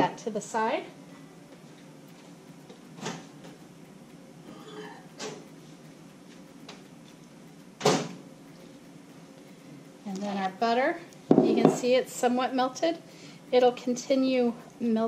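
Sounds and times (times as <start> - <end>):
knocks in kitchen: 11.3 - 11.8.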